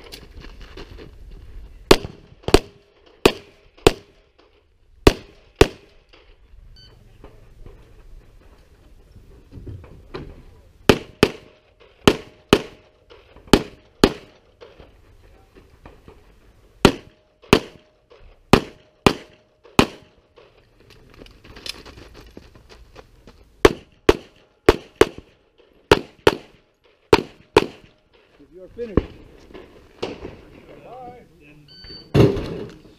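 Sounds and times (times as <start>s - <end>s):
pistol shots in pairs: 1.9s - 4.2s, 5.0s - 6.2s, 10.9s - 12.9s, 13.5s - 14.7s, 16.8s - 20.2s, 23.6s - 28.0s.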